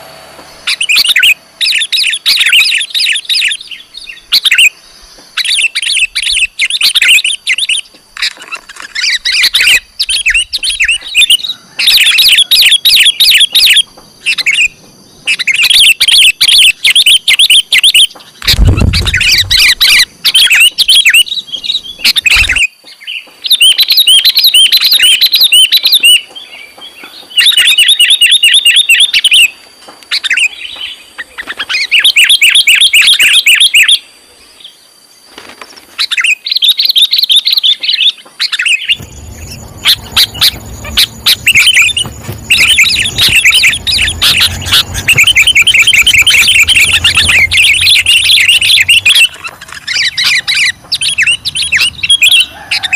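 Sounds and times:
bird rapid high chirps: 0.6s - 4.8s, 5.4s - 29.5s, 36.0s - 52.9s
low thud and rumble: 18.5s - 20.0s, 39.0s - 52.2s.

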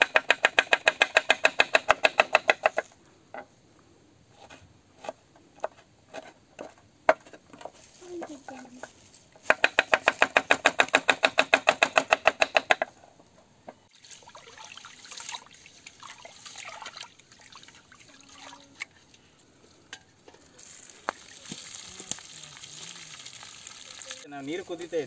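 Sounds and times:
water poured onto ground: 13.9s - 19.2s, 20.4s - 25.0s
rice swished in water: 20.7s - 24.3s.

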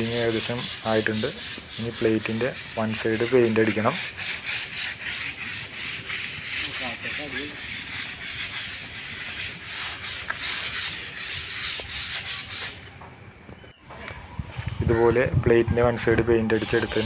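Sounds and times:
sandpaper rubbing on steel plate: 0.0s - 12.9s, 16.5s - 17.0s.

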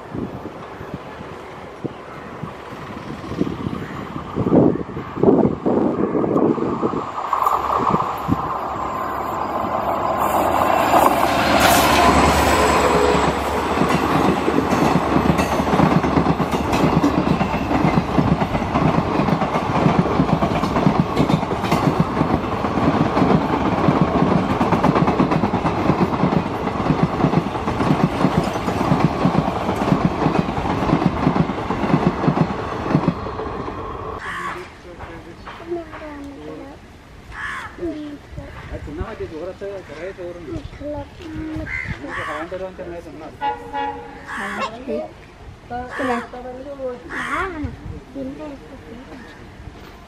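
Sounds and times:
diesel locomotive passing: 0.0s - 37.3s, 42.2s - 47.2s
train wheels clattering on rails: 6.4s - 33.7s.

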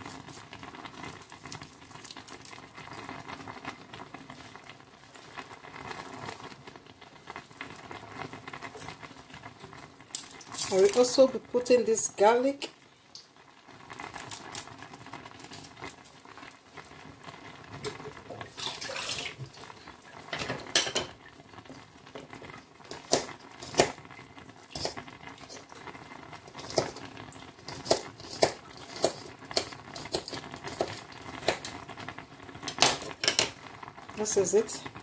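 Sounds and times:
hiss from pot: 0.0s - 2.4s, 18.0s - 20.1s, 24.6s - 31.9s
food popping in pot: 0.0s - 11.3s, 13.2s - 35.0s.

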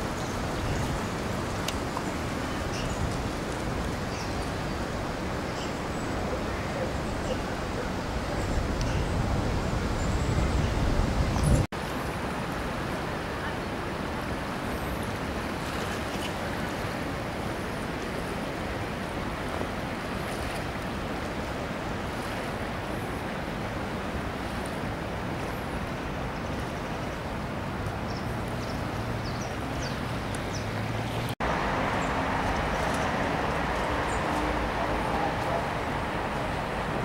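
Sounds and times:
river rushing: 0.0s - 37.0s
road traffic: 27.6s - 37.0s.

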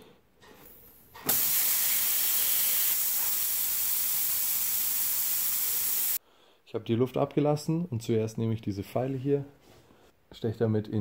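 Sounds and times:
air hissing out of tyre: 1.3s - 6.2s.

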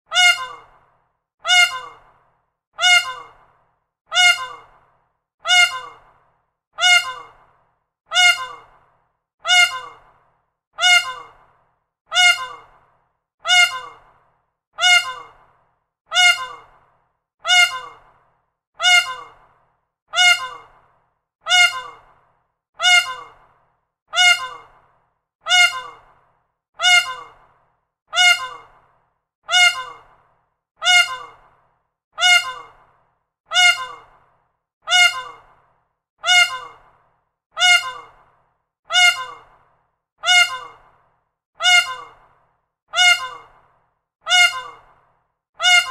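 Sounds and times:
peacock calling: 0.1s - 0.7s, 1.5s - 2.1s, 2.8s - 3.4s, 4.1s - 4.7s, 5.5s - 6.1s, 6.8s - 7.4s, 8.1s - 8.7s, 9.5s - 10.0s, 10.8s - 11.4s, 12.1s - 12.7s, 13.5s - 14.1s, 14.8s - 15.4s, 16.1s - 16.7s, 17.5s - 18.0s, 18.8s - 19.4s, 20.2s - 20.7s, 21.5s - 22.1s, 22.8s - 23.4s, 24.2s - 24.7s, 25.5s - 26.1s, 26.8s - 27.4s, 28.2s - 28.8s, 29.5s - 30.1s, 30.8s - 31.4s, 32.2s - 32.8s, 33.5s - 34.1s, 34.9s - 35.5s, 36.2s - 36.8s, 37.6s - 38.2s, 38.9s - 39.5s, 40.2s - 40.8s, 41.6s - 42.2s, 43.0s - 43.5s, 44.3s - 44.9s, 45.6s - 45.9s.

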